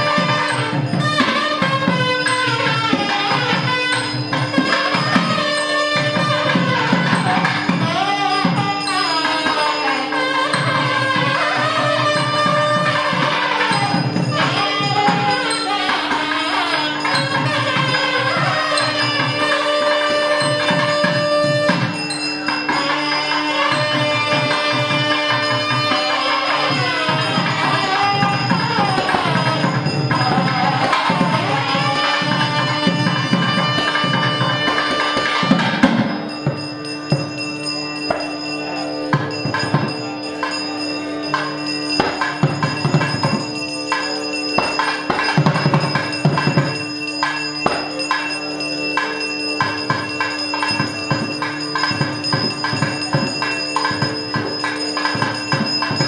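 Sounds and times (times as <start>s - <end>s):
bell strokes: 0.0s - 56.0s
drum strokes: 0.0s - 56.0s
reedy pipe melody: 0.0s - 56.0s.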